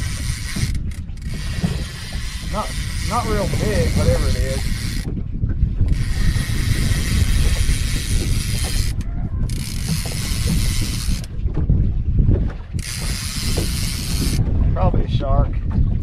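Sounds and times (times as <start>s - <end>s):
fishing reel cranking and ratcheting: 0.0s - 5.1s, 5.8s - 11.3s, 12.8s - 14.4s
water: 0.0s - 16.0s
wind: 0.0s - 16.0s.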